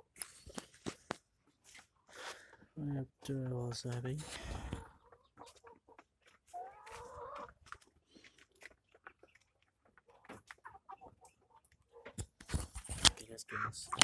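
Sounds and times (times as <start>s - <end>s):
chickens pecking at feed: 0.0s - 13.2s
chicken calling: 4.3s - 7.7s, 10.0s - 12.1s.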